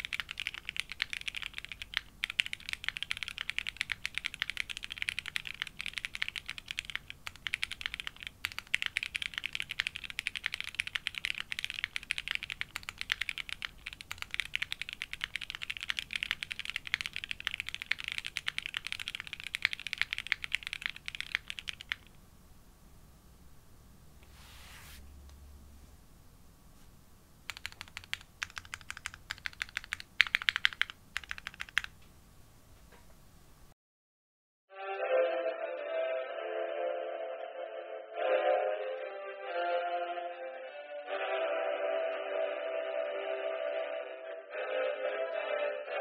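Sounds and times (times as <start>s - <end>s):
fast typing on mechanical keyboard: 0.0s - 22.2s, 27.5s - 32.0s.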